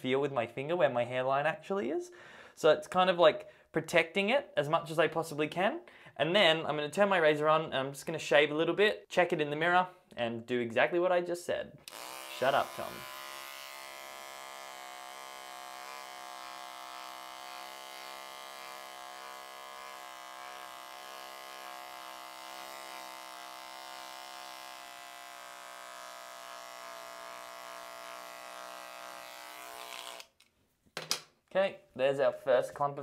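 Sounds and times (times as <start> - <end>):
electric trimmer buzzing: 11.8 - 30.4.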